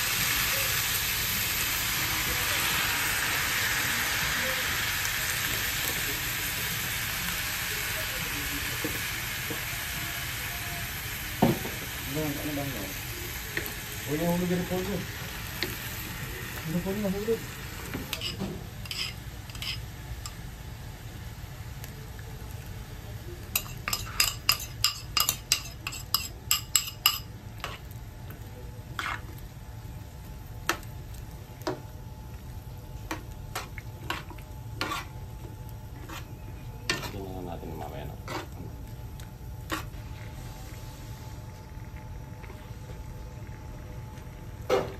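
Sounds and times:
low sizzle: 0.0s - 44.9s
metal spoon clinking on pan: 18.1s - 20.4s, 23.5s - 27.8s.

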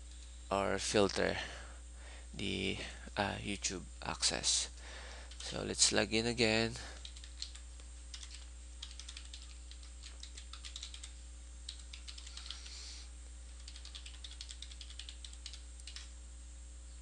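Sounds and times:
faint steady hum: 0.0s - 17.0s
typing on a computer keyboard: 5.3s - 5.6s, 7.0s - 12.7s, 13.6s - 16.1s.

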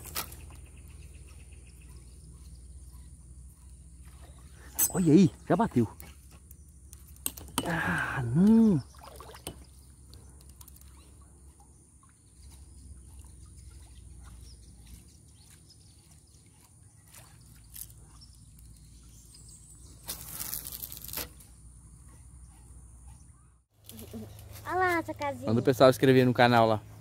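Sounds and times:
water sloshing and trickling: 0.0s - 7.7s, 8.4s - 21.6s.

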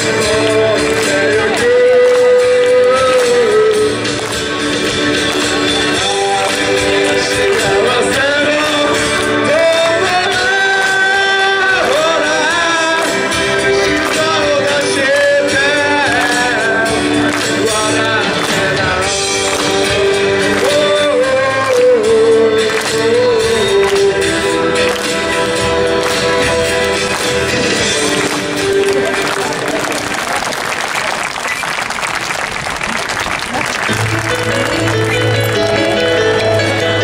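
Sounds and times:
man singing into a microphone: 0.0s - 4.8s, 5.6s - 26.9s
acoustic guitar strumming: 0.0s - 29.5s.

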